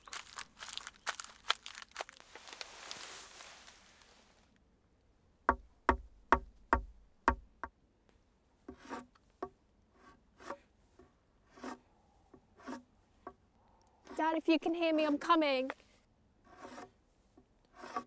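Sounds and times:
sharp knocks on a log: 0:05.5 - 0:07.7.

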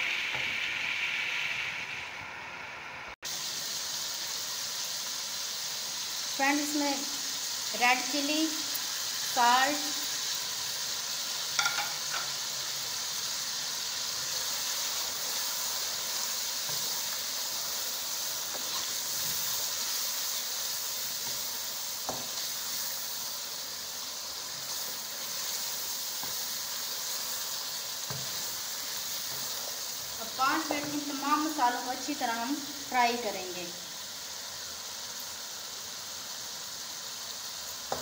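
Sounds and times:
food sizzling in a wok: 0:00.0 - 0:38.0
wooden spoon knocking pan: 0:11.6 - 0:12.3.

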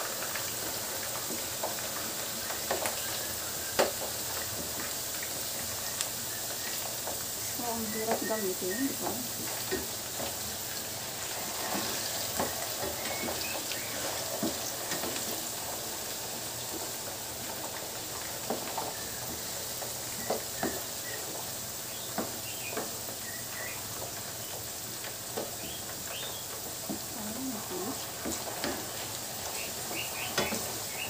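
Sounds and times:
potatoes sizzling in hot oil: 0:00.0 - 0:31.0
wooden spatula stirring: 0:07.8 - 0:15.4.

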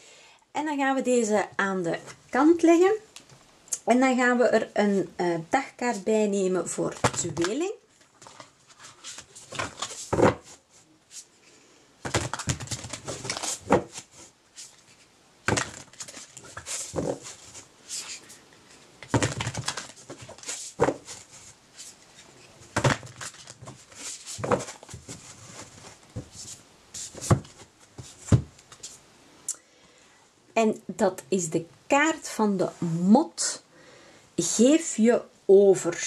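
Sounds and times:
cards being shuffled: 0:06.9 - 0:11.3, 0:12.0 - 0:18.4, 0:19.0 - 0:29.0.

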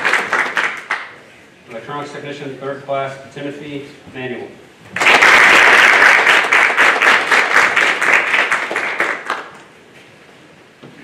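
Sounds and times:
audience applauding: 0:00.0 - 0:01.2, 0:05.0 - 0:09.7.

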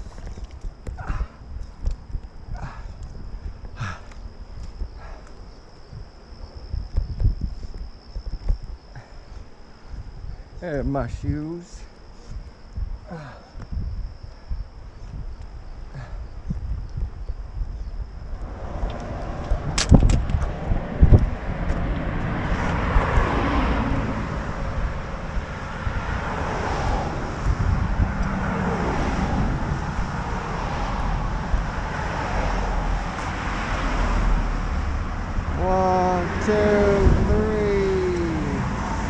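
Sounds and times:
cars passing on a bridge: 0:18.0 - 0:39.0.

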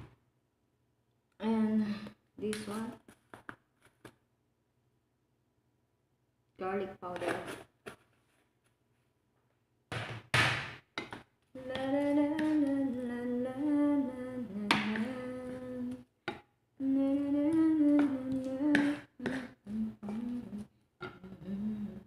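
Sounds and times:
woman humming: 0:11.6 - 0:16.1, 0:16.8 - 0:22.0.

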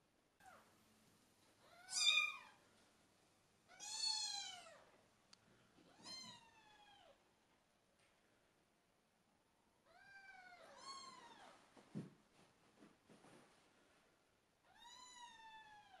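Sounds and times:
kittens meowing: 0:01.6 - 0:02.6, 0:05.9 - 0:07.2.

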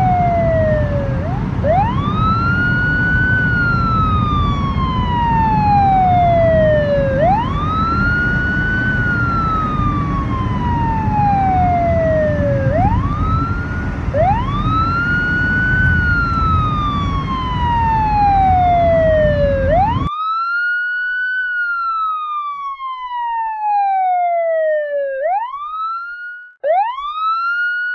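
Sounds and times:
car road rumble: 0:00.0 - 0:20.1
siren wailing: 0:00.0 - 0:27.9.

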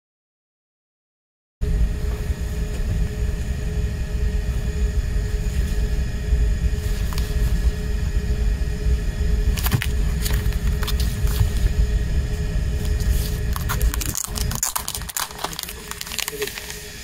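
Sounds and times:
faint hum: 0:01.6 - 0:17.0
low rumble: 0:01.6 - 0:17.0
plastic wrap crackling: 0:09.5 - 0:11.8, 0:12.7 - 0:17.0.

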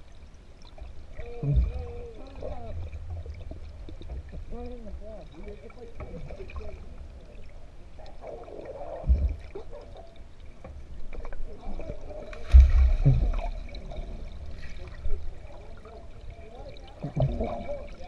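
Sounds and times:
underwater pool water sloshing: 0:00.0 - 0:18.0
dull underwater thumps: 0:01.2 - 0:02.0, 0:09.0 - 0:10.0, 0:12.3 - 0:15.2, 0:17.0 - 0:17.8.

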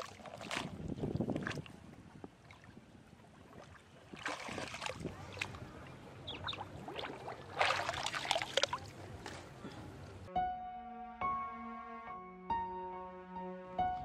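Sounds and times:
hands splashing in muddy water: 0:00.0 - 0:01.8, 0:03.4 - 0:09.6.

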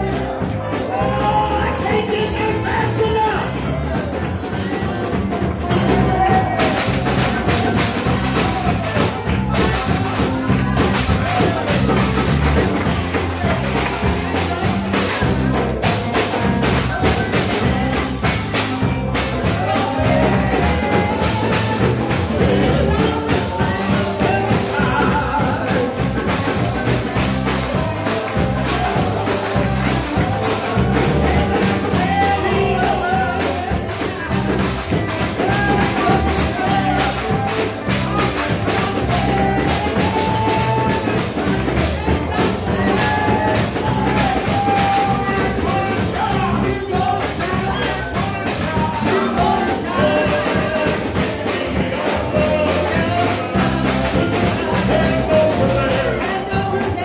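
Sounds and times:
drums: 0:00.0 - 0:57.0
people singing gospel: 0:00.0 - 0:57.0
piano: 0:00.0 - 0:57.0
tambourine: 0:00.0 - 0:57.0.

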